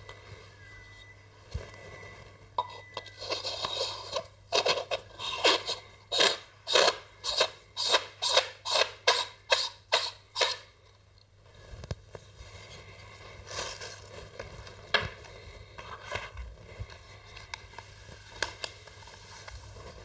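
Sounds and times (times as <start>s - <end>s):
metal threads scraping: 3.0s - 10.6s.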